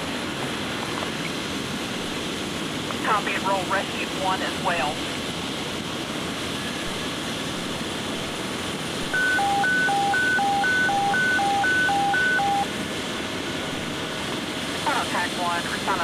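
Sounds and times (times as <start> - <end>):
radio alert beeps high and low: 9.1 - 12.7.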